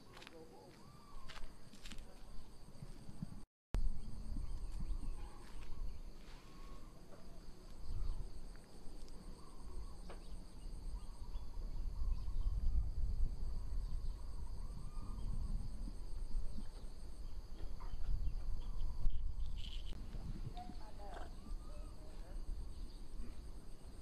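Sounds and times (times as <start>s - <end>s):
insects chirring: 0.0s - 24.0s
pulsing insect trill: 3.8s - 20.0s.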